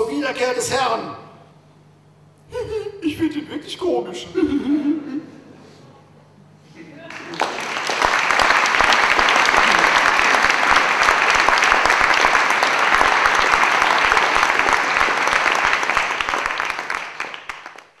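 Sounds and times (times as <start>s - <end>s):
crowd applauding: 7.0s - 18.0s.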